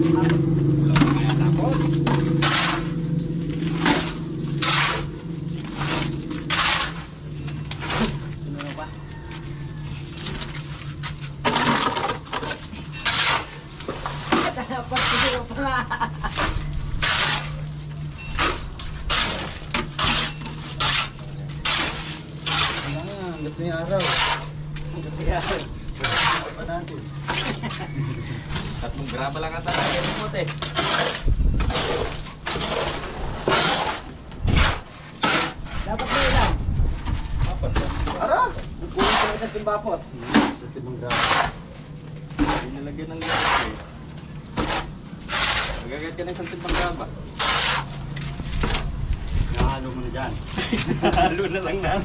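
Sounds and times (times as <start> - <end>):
shovel scraping wet concrete: 0.0 - 8.9, 9.8 - 36.7, 37.4 - 48.9
steady low hum: 0.0 - 38.0.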